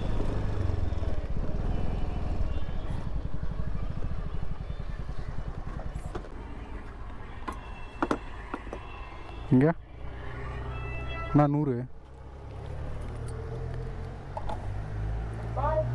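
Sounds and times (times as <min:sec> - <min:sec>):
scooter engine running: 0:00.0 - 0:08.8
road noise: 0:00.0 - 0:15.9.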